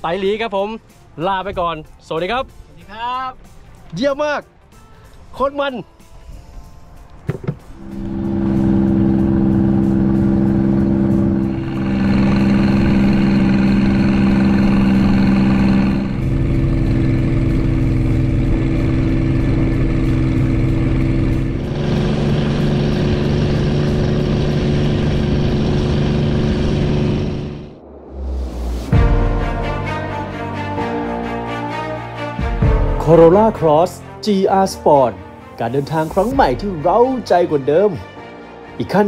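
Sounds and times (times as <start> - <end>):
engine running: 7.5 - 33.3.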